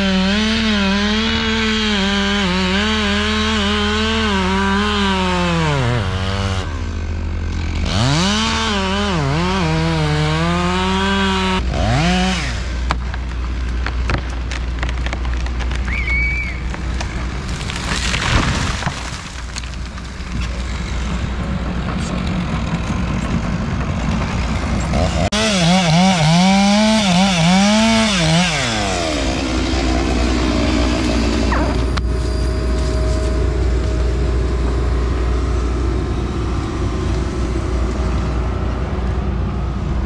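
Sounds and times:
chainsaw revving: 0.0 - 12.8, 23.9 - 32.0
wood crashing: 12.8 - 25.3
wood cracking and knocking: 12.9 - 20.8
machine engine running: 29.0 - 40.0.

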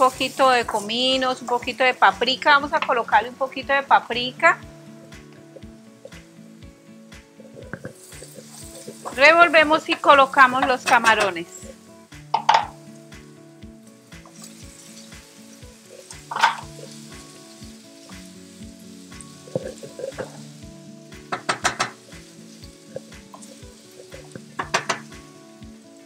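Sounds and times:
shrimp sizzling in oil: 0.0 - 26.0.

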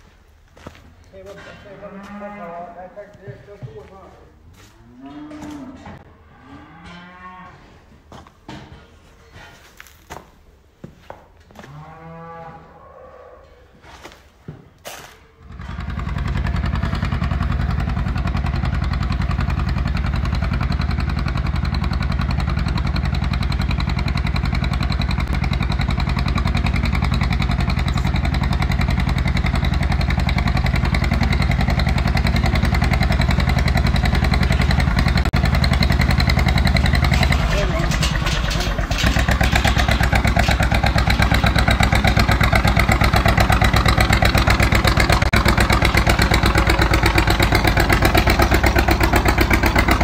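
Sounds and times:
tractor engine pulsing: 15.5 - 50.0.

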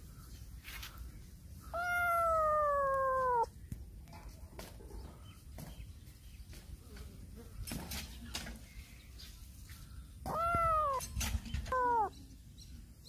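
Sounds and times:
kitten meowing: 1.8 - 3.5, 10.3 - 12.1.

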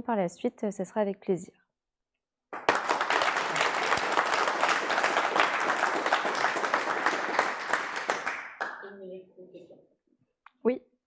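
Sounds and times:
audience applauding: 2.6 - 8.9.

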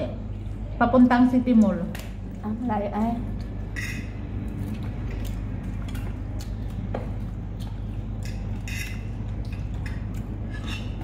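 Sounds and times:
low room hum: 0.0 - 11.0
cutlery clinking on plates: 8.2 - 11.0.

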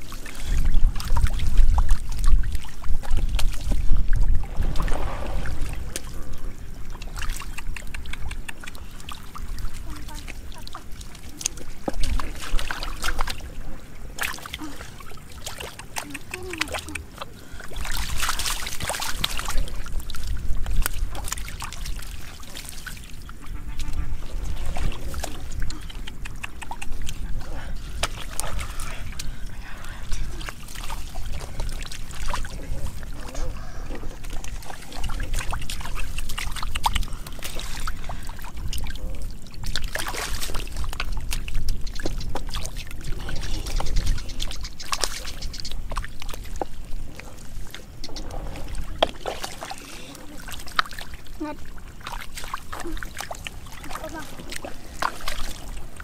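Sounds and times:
low rumble: 3.0 - 7.4
hands splashing in muddy water: 14.1 - 23.2, 34.1 - 51.2, 52.0 - 56.0
fish flapping: 24.7 - 29.5, 39.9 - 50.1.

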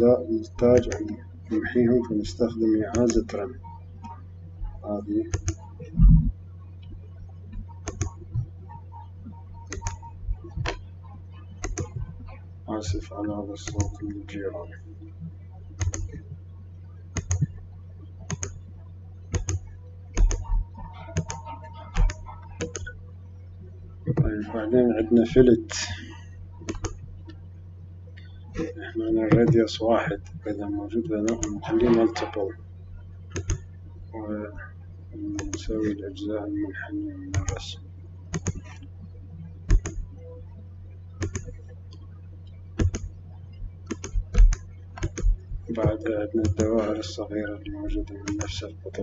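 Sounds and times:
steady low hum: 0.0 - 49.0
computer mouse clicks: 5.3 - 5.7, 7.5 - 8.5, 9.3 - 10.8, 11.6 - 12.1, 15.8 - 16.3, 17.1 - 17.6, 18.3 - 18.6, 19.3 - 23.0, 26.6 - 27.1, 31.3 - 31.6, 33.3 - 33.7, 35.4 - 35.7, 37.3 - 37.6, 38.3 - 38.9, 39.7 - 40.1, 41.2 - 42.0, 42.8 - 43.1, 43.8 - 46.9.

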